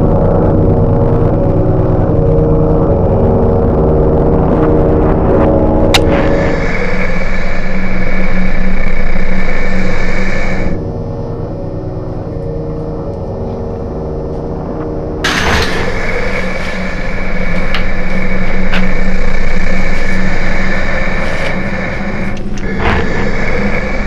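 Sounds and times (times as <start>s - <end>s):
low rumbling drone: 0.0s - 24.0s
burst of harsh noise: 6.0s - 10.8s, 15.2s - 24.0s.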